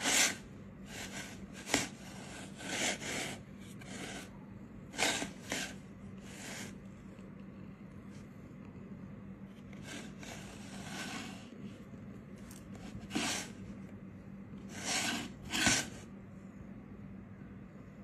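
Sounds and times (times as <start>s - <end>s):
cat scraping in plastic jug: 0.0s - 4.3s, 4.9s - 6.8s, 9.7s - 11.6s, 12.8s - 13.6s, 14.7s - 16.0s.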